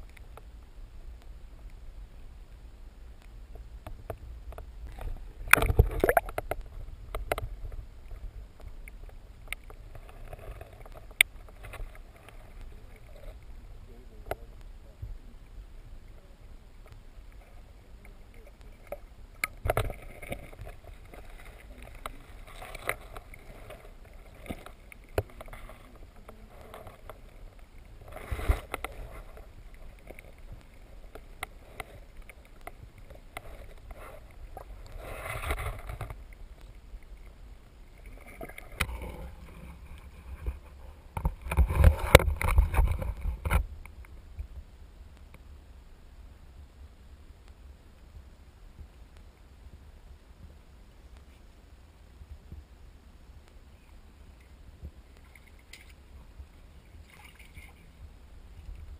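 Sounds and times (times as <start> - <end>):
low underwater rumble: 0.0 - 58.9
rushing bubbling water: 3.6 - 13.9, 15.0 - 44.4.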